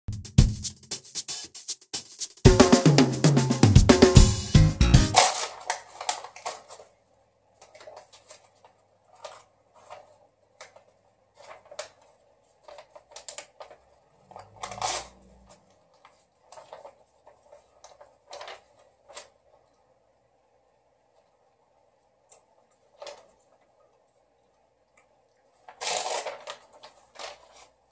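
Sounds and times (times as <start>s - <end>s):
paper tearing and crumpling: 5.2s - 7.0s, 14.4s - 19.3s, 25.7s - 27.8s.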